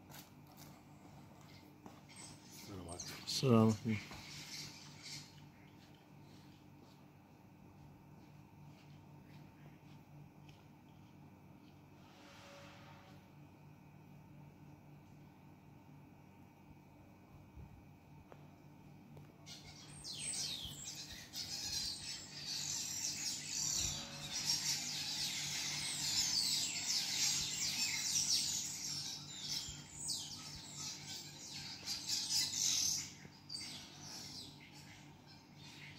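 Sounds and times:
flock of birds chirping: 0:01.4 - 0:06.5, 0:19.4 - 0:35.9.

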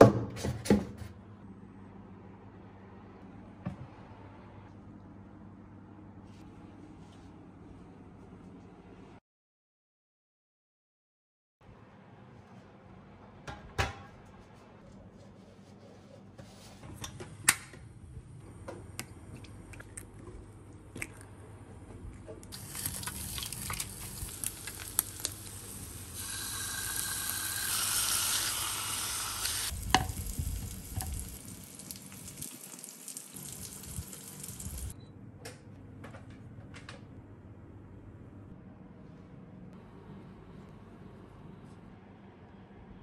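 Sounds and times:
meat and eggs sizzling in a pan: 0:22.6 - 0:34.9.

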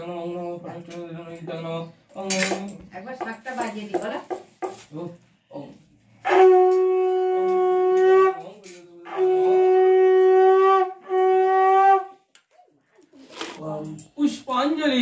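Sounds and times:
conch shell blasts: 0:06.2 - 0:12.2.

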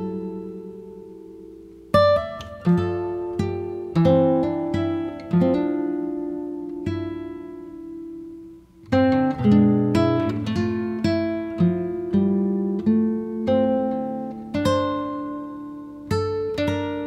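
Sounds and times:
plucked acoustic guitar: 0:00.0 - 0:17.0.

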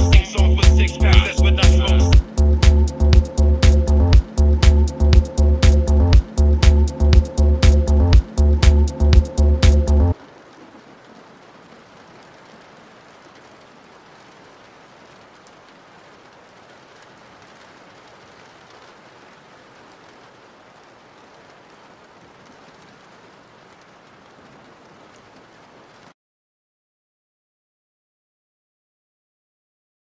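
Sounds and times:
raindrop ticks: 0:00.0 - 0:26.2
soft rain hiss: 0:00.0 - 0:26.2.

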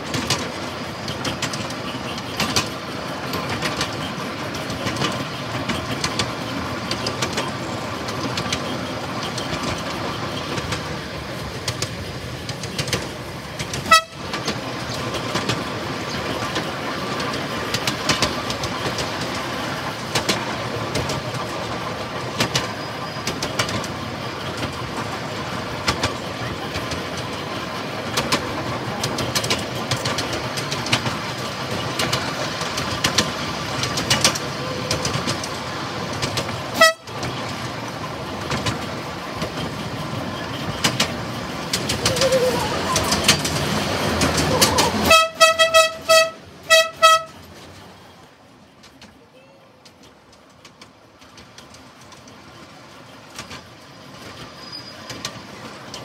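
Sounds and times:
train wheels rumbling on rails: 0:00.0 - 0:56.0
high train horn toot: 0:13.8 - 0:14.4, 0:36.8 - 0:37.2, 0:45.0 - 0:47.4.

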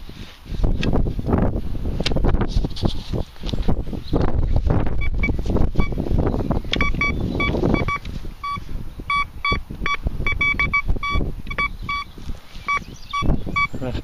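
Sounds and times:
wind buffeting microphone: 0:00.0 - 0:14.0
metal detector beeps: 0:05.0 - 0:06.0, 0:06.7 - 0:13.8.

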